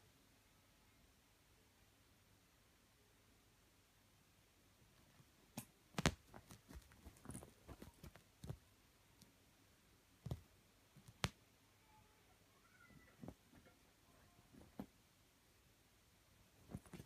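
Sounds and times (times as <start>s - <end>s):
cat scratching a bed sheet: 5.9s - 8.6s, 16.6s - 17.0s.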